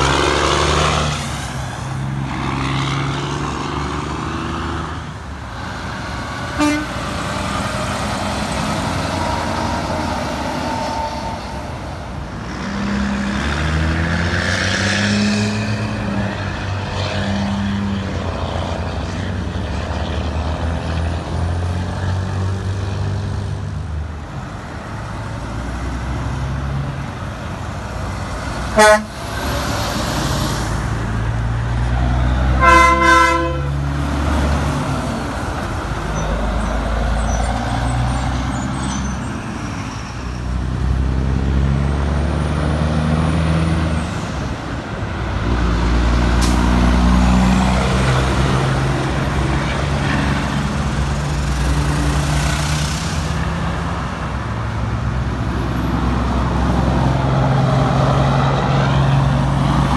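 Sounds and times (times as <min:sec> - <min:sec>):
diesel trucks running: 0:00.0 - 0:59.9
truck horn: 0:06.5 - 0:13.2, 0:28.6 - 0:29.4, 0:32.5 - 0:34.0.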